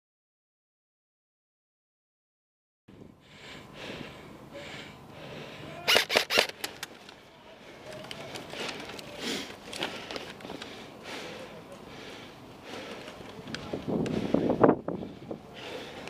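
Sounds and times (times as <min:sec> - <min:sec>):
airsoft rifle firing clicks: 0:05.9 - 0:07.0.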